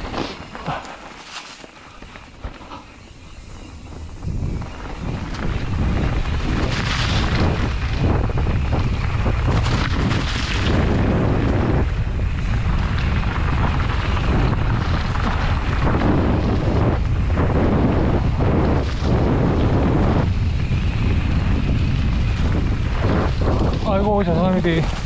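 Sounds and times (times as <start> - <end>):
bike rattling over bumps: 0.0 - 25.0
wind buffeting microphone: 0.0 - 25.0.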